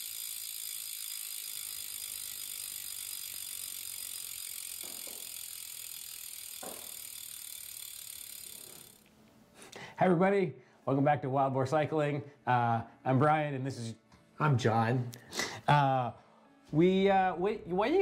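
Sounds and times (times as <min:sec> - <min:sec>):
bike hub freewheel buzzing: 0:00.0 - 0:09.1.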